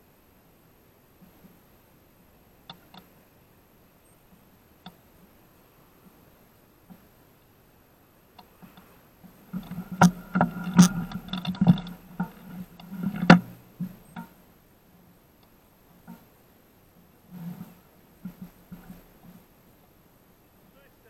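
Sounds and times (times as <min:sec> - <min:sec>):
bicycle rattling over bumps: 0:08.6 - 0:14.4
sharp metallic knocks: 0:09.6 - 0:14.4.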